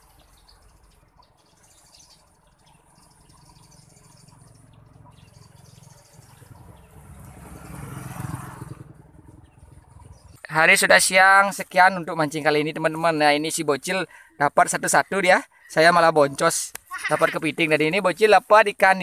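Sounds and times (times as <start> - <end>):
insect chirps: 0.0 - 7.7
bird chirps: 0.0 - 7.8, 8.9 - 10.6
vehicle passing rumble: 2.2 - 11.1.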